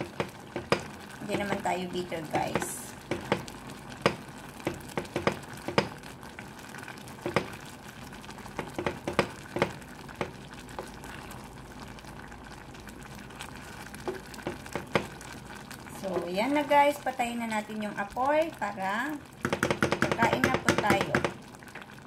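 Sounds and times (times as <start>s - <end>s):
wooden spoon knocking pot: 0.0s - 6.0s, 7.2s - 7.6s, 8.5s - 10.9s, 14.0s - 15.2s, 19.4s - 21.4s
soup bubbling at a boil: 0.0s - 22.0s.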